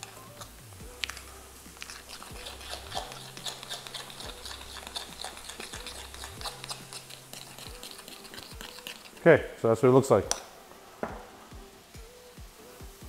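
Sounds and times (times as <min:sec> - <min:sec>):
spoon stirring in glass bowl: 0:00.0 - 0:09.3.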